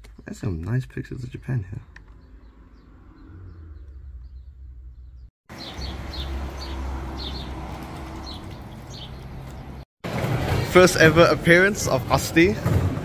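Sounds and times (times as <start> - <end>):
birds chirping: 0.9 - 9.8.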